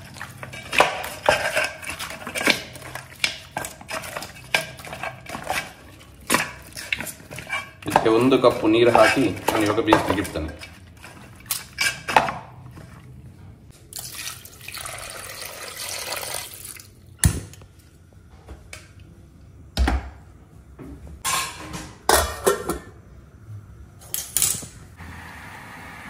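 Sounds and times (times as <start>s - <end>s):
water pouring into a pot: 13.9s - 17.0s.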